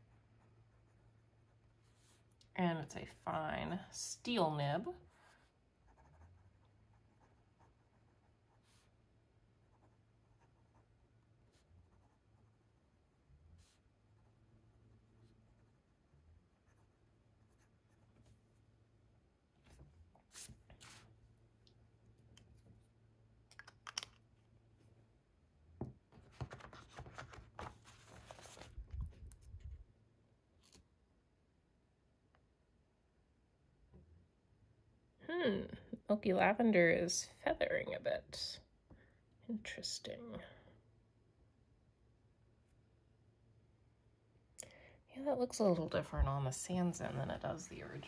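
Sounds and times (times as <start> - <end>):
low steady hum: 0.0 - 48.0
pen clicks: 23.5 - 24.2
paper rustling and scraping: 26.2 - 29.7.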